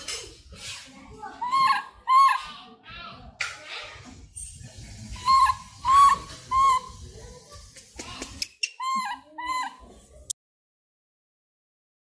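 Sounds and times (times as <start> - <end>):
monkey high-pitched calls: 1.4 - 2.5, 5.1 - 7.0, 8.6 - 9.8.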